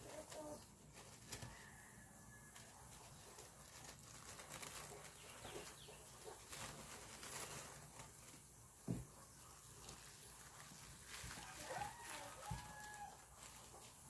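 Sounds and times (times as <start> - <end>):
bouquet wrapping handling noise: 0.0 - 14.0
soft thump: 8.8 - 9.1.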